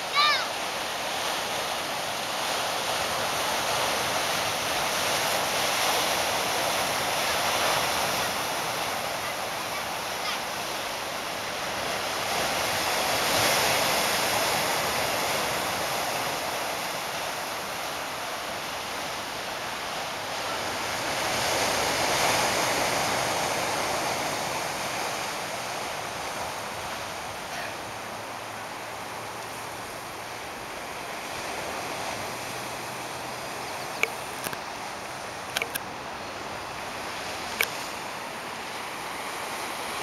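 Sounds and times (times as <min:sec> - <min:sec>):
surf breaking over rocks: 0:00.0 - 0:40.0.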